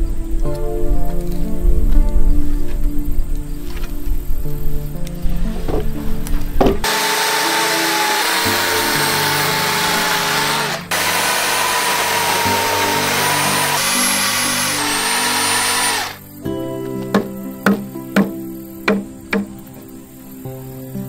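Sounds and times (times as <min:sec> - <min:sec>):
soft background music: 0:00.0 - 0:21.0
power tool cutting timber: 0:06.8 - 0:16.2.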